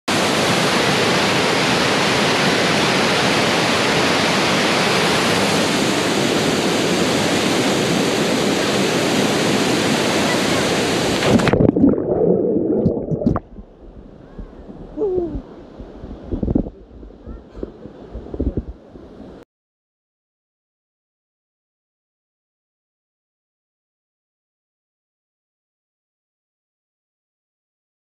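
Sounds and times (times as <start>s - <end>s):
waterfall rushing: 0.1s - 13.4s
muffled underwater splashing: 10.5s - 19.4s.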